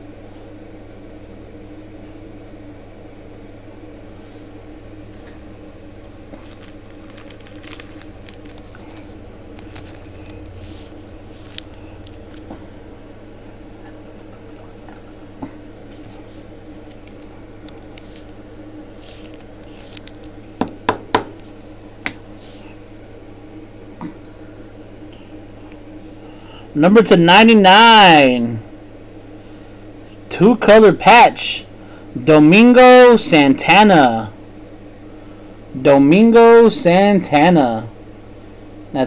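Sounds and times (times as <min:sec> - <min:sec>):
steady low hum: 0:00.0 - 0:39.0
cards rustling and scraping: 0:06.3 - 0:12.5, 0:15.8 - 0:20.4, 0:21.3 - 0:22.8.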